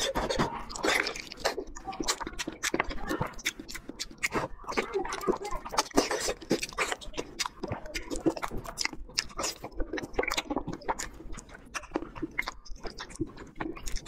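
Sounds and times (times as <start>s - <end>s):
mouth clicks: 0.0s - 14.0s
person chewing: 0.0s - 14.0s.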